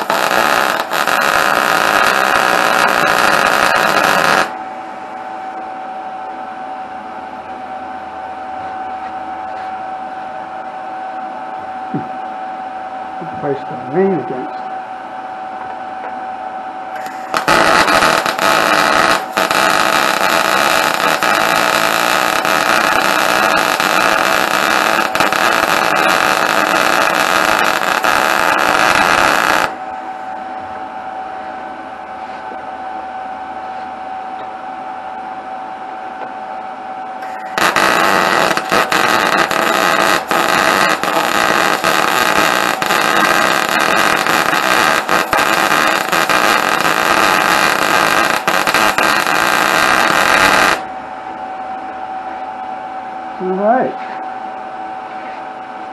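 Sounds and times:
welding arc crackling: 0:00.0 - 0:04.6, 0:17.0 - 0:29.8, 0:37.2 - 0:50.9
steady hum: 0:00.0 - 0:55.9.

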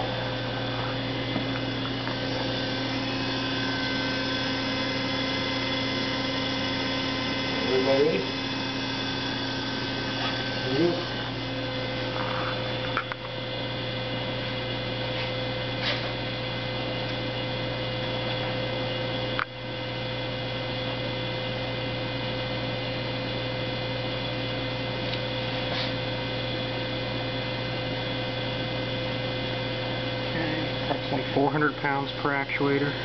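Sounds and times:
hydraulic rig humming: 0:00.0 - 0:17.3, 0:29.6 - 0:33.0.

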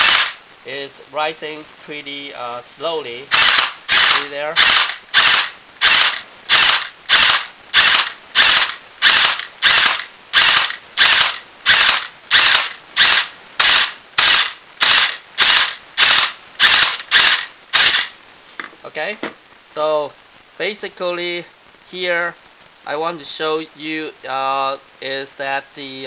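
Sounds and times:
airsoft gun firing short bursts: 0:00.0 - 0:00.4, 0:03.3 - 0:18.1.

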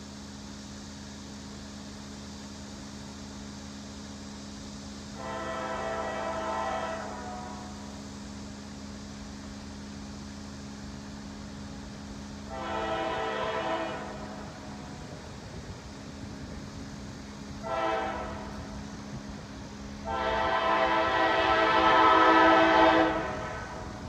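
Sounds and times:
locomotive air horn blasts: 0:05.2 - 0:08.0, 0:12.5 - 0:15.2, 0:17.6 - 0:18.8, 0:20.0 - 0:24.0.

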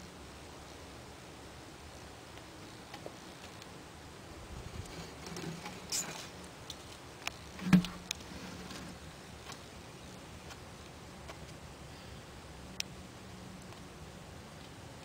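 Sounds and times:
faint clicks and rustles: 0:02.0 - 0:03.8, 0:04.6 - 0:11.6.

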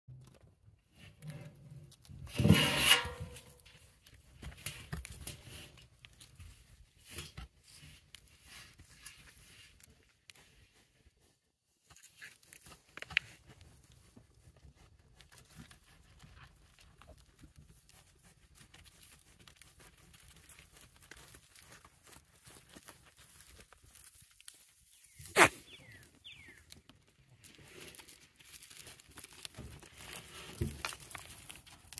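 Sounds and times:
goats scuffing and rustling in dirt: 0:00.9 - 0:31.9
faint crackles and clicks: 0:11.8 - 0:14.0, 0:15.2 - 0:25.2, 0:25.8 - 0:31.9.

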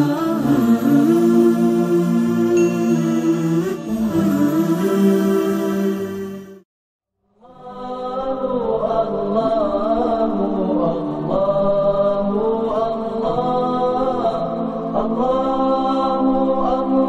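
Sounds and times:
voices chanting unaccompanied: 0:00.0 - 0:06.4.

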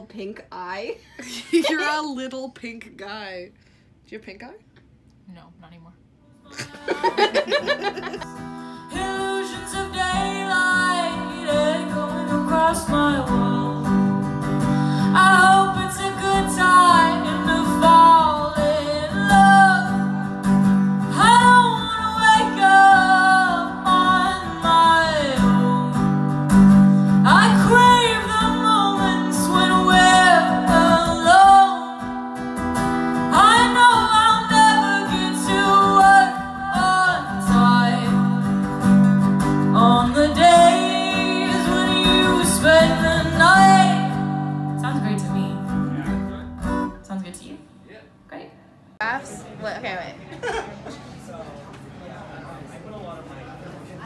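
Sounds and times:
acoustic guitar: 0:06.2 - 0:47.8
woman singing slow song: 0:06.3 - 0:26.4, 0:27.1 - 0:32.4, 0:33.2 - 0:38.7, 0:39.6 - 0:45.8.

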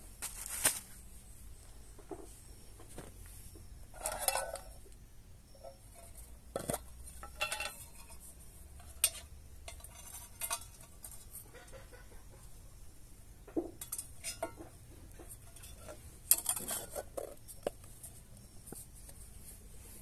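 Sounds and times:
metal tin clinks and scrapes: 0:03.9 - 0:04.9, 0:05.5 - 0:12.1, 0:13.8 - 0:18.2.

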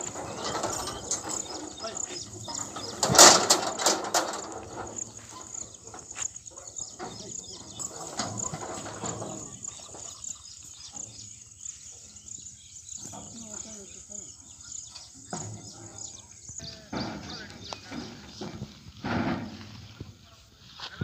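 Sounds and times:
metal cart knocking and rattling: 0:00.0 - 0:11.4, 0:15.1 - 0:20.1
crickets chirping: 0:00.0 - 0:20.7.

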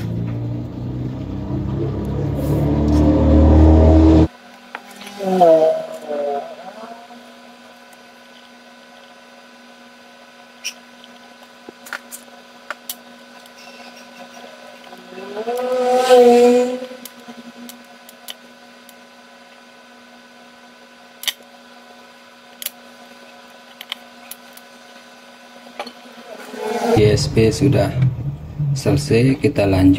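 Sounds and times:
loud pitched tone: 0:00.0 - 0:04.3, 0:26.1 - 0:29.2
electrical hum: 0:00.0 - 0:29.9.

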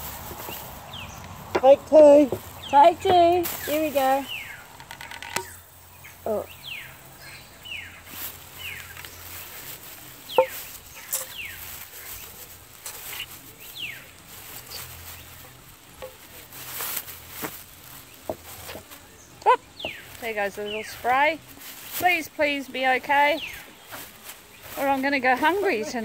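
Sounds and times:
plastic bag crinkling: 0:02.3 - 0:06.3, 0:07.0 - 0:19.4, 0:20.0 - 0:26.0
hand can opener working: 0:04.7 - 0:05.6.

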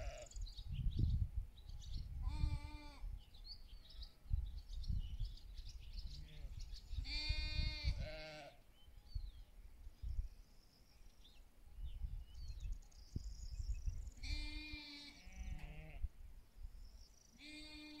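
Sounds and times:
sheep bleating: 0:07.1 - 0:08.6, 0:14.2 - 0:16.0, 0:17.4 - 0:18.0.

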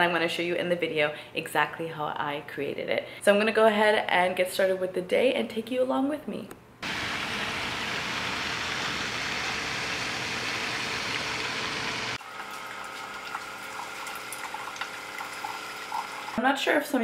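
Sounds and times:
steady hiss: 0:06.8 - 0:12.2
coffee maker pump hum: 0:06.8 - 0:16.4
coffee streaming into mug: 0:12.2 - 0:16.4
small ticks and drips: 0:12.4 - 0:16.1.

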